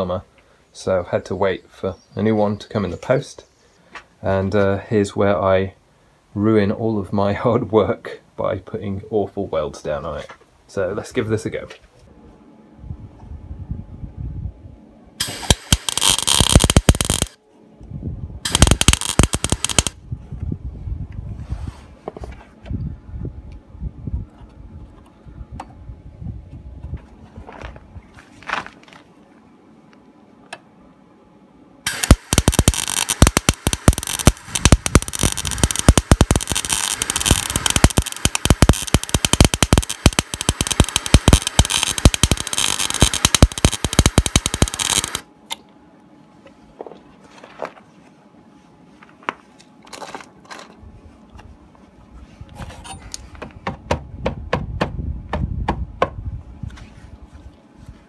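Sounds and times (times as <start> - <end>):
welding arc crackling: 15.2 - 17.4, 18.5 - 20.0, 31.9 - 45.3
ticks and pops: 31.9 - 45.2.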